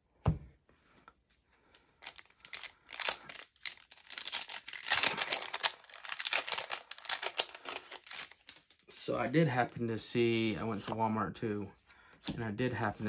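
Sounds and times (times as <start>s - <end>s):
foil wrapper crinkling: 2.0s - 8.8s.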